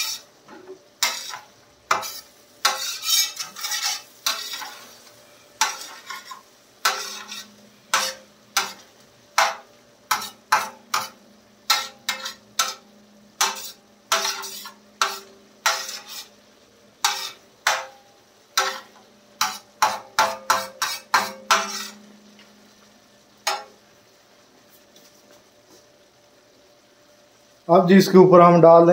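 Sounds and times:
spatula scraping steel pan: 0:00.0 - 0:00.3, 0:01.0 - 0:05.0, 0:05.6 - 0:12.8, 0:13.4 - 0:16.4, 0:17.0 - 0:18.0, 0:18.6 - 0:22.1
food sizzling: 0:00.0 - 0:28.9.

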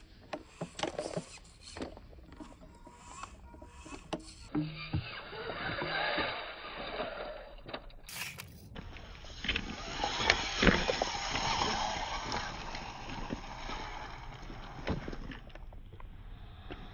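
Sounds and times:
rc car wheels clattering on rocks: 0:08.1 - 0:15.8.

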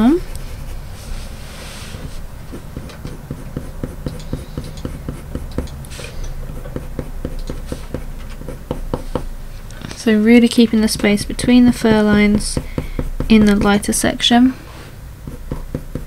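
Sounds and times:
coloured pencil scratching paper: 0:00.0 - 0:05.7, 0:06.5 - 0:09.2, 0:10.7 - 0:14.1.

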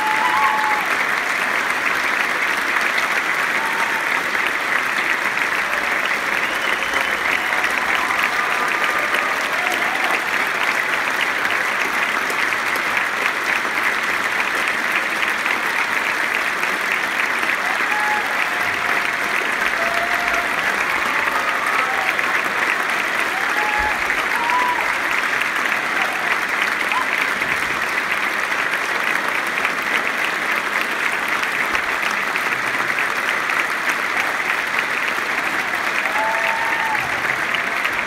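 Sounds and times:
audience applauding: 0:00.0 - 0:38.0.

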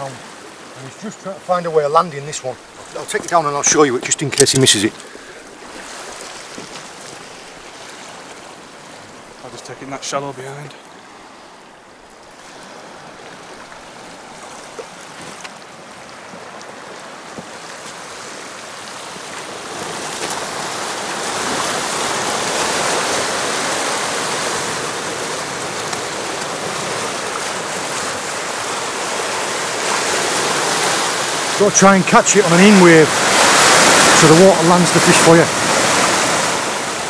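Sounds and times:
surf breaking over rocks: 0:00.0 - 0:37.0.

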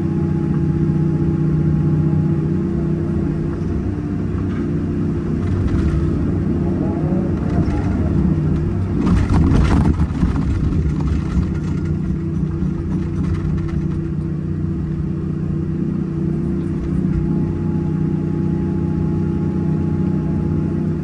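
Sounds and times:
diesel excavator engine running: 0:00.0 - 0:21.0
bucket scraping stony ground: 0:07.5 - 0:14.0.

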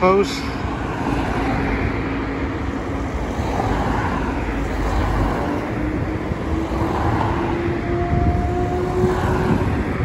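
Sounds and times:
cars passing: 0:00.0 - 0:10.0.

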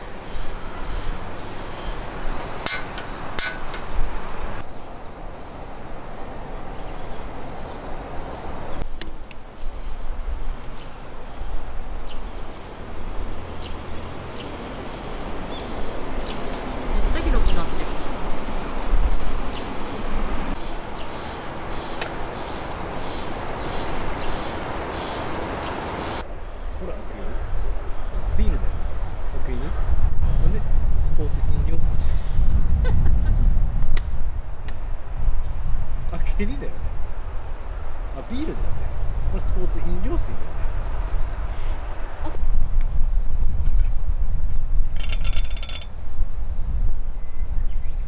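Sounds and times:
wind through pine trees: 0:00.0 - 0:48.0
metallic clinks: 0:02.7 - 0:03.9, 0:45.0 - 0:45.9.

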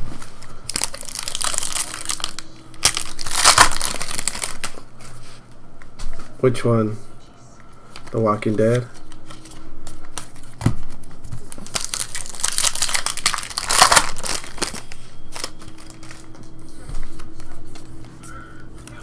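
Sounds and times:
wrapper crinkling and tearing: 0:00.6 - 0:04.8, 0:11.5 - 0:16.3.

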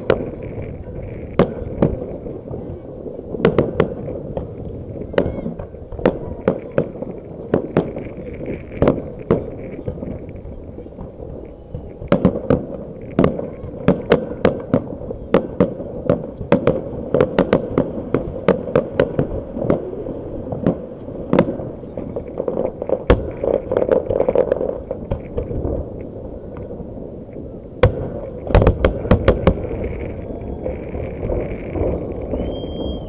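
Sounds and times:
fireworks bursting with bangs and crackles: 0:00.0 - 0:33.0.

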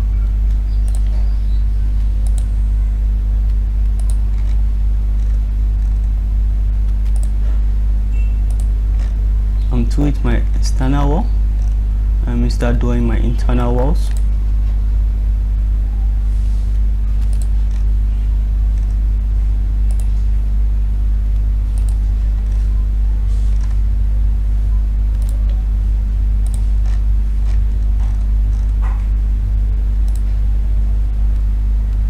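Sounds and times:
low electrical hum: 0:00.0 - 0:32.0
computer mouse clicks: 0:00.5 - 0:01.1, 0:02.0 - 0:02.5, 0:03.4 - 0:04.6, 0:06.9 - 0:07.4, 0:08.5 - 0:09.1, 0:14.0 - 0:14.3, 0:17.2 - 0:17.9, 0:19.9 - 0:20.1, 0:21.8 - 0:22.6, 0:26.4 - 0:28.8.

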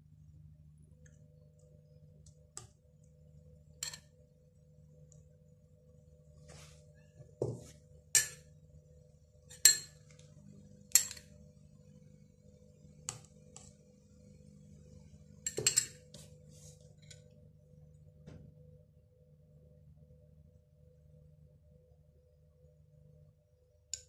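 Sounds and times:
spoon clinking against glass: 0:03.8 - 0:04.1, 0:09.5 - 0:10.0, 0:15.5 - 0:16.0.

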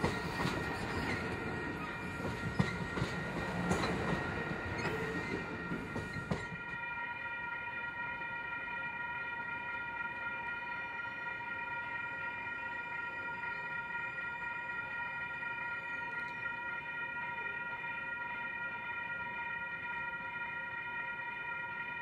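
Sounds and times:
railroad crossing bells: 0:00.0 - 0:22.0.

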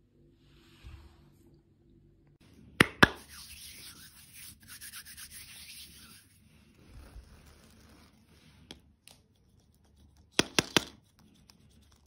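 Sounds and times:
hands clapping: 0:02.8 - 0:03.3
palms rubbing together: 0:02.8 - 0:08.6.

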